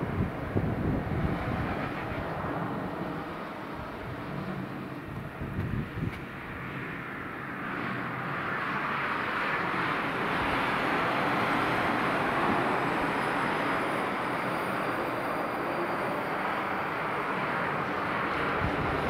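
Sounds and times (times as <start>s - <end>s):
wind buffeting microphone: 0.0s - 7.1s, 16.4s - 19.0s
jet engines rushing: 0.0s - 19.0s.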